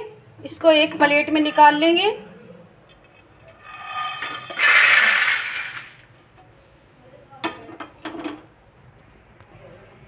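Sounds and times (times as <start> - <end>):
nuts rattling onto steel plate: 3.0 - 6.0.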